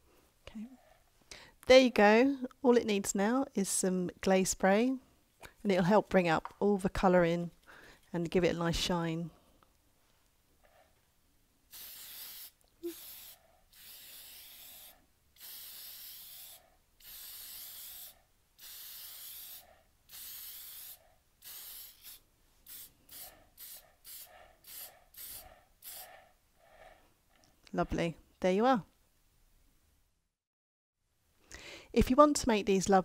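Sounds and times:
aerosol spray hissing in bursts: 11.7 - 26.2.

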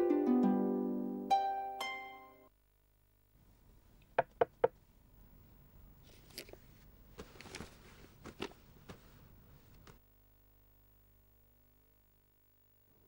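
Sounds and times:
paper rustling: 6.1 - 10.0
soft bumps of paper on bed: 7.1 - 10.0.

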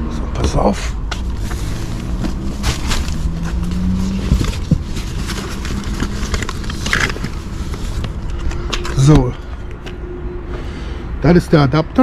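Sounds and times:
hand rummaging among bags: 0.4 - 9.3.

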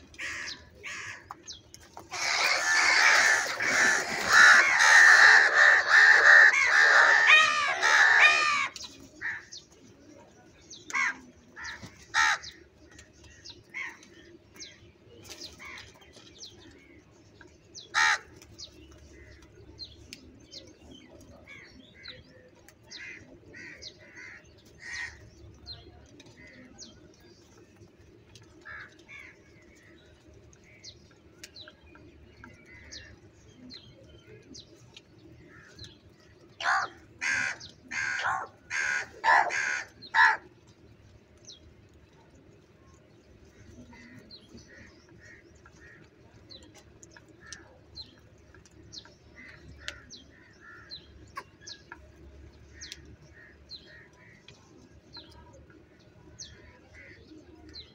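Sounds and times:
crows cawing: 2.1 - 9.5, 10.9 - 12.6, 17.9 - 18.3, 23.0 - 25.2, 36.6 - 40.5.

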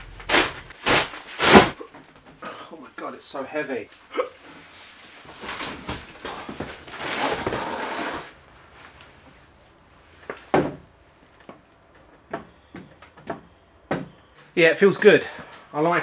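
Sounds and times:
scraping and rustling of cardboard: 0.0 - 1.9, 4.6 - 9.3.

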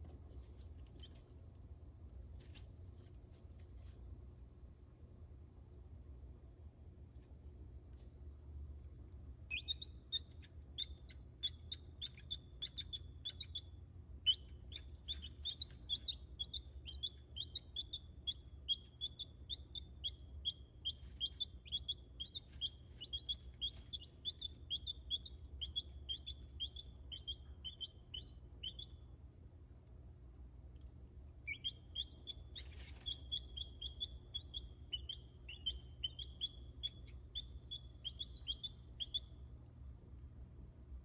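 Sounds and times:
chicks peeping: 9.4 - 29.0, 31.4 - 39.4.

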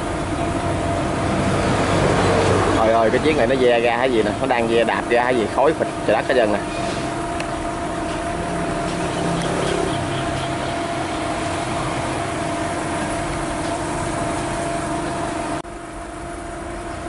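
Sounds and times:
diesel engine droning: 0.0 - 17.0.

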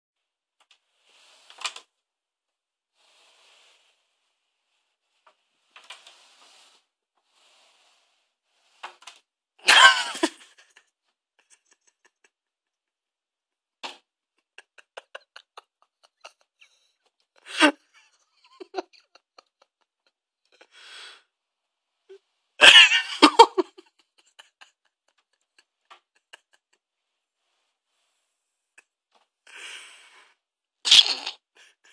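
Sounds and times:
stifled laughter: 9.6 - 10.8, 11.4 - 12.8, 14.4 - 20.1, 22.6 - 26.8.

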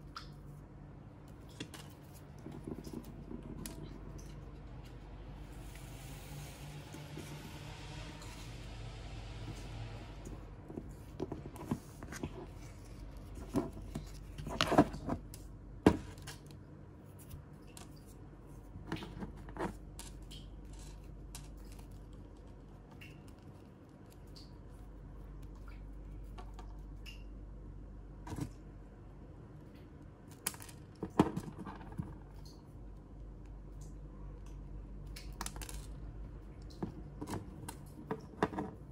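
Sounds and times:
low hum: 2.3 - 14.4.

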